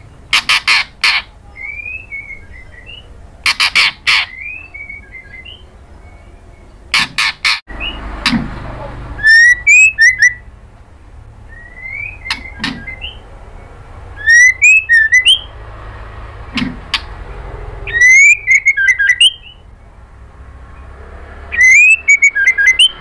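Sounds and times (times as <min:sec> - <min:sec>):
bird calling with clicks and whistles: 0:00.3 - 0:08.4, 0:09.2 - 0:10.5, 0:11.5 - 0:15.5, 0:17.9 - 0:19.7, 0:21.5 - 0:23.0.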